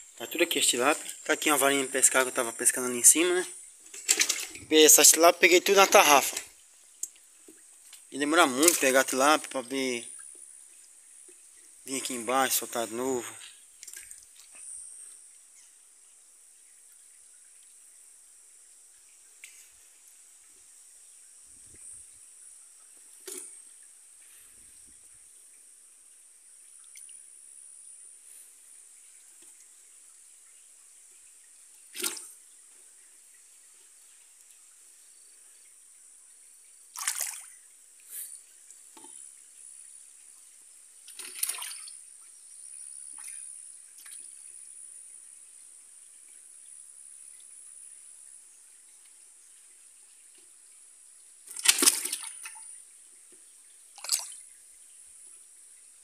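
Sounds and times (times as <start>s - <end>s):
high-pitched insect chorus: 0.0s - 6.6s, 41.2s - 48.8s
small water splashes: 0.0s - 20.6s, 21.2s - 27.4s, 28.8s - 44.8s, 45.4s - 56.0s
water trickling: 0.0s - 56.0s.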